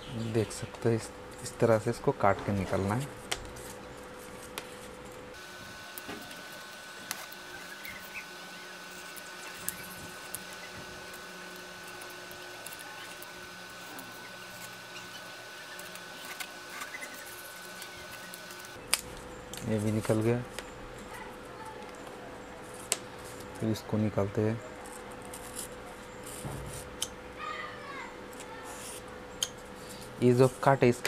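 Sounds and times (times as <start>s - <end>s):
knife blade scratching cardboard: 8.9s - 18.6s, 24.9s - 27.0s.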